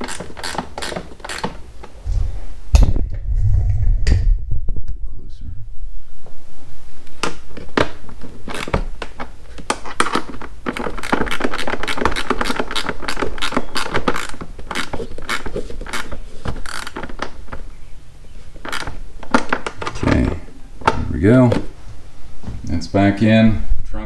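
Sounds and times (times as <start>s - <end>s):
hand ratchet clicking: 0.0s - 1.6s, 10.9s - 16.1s.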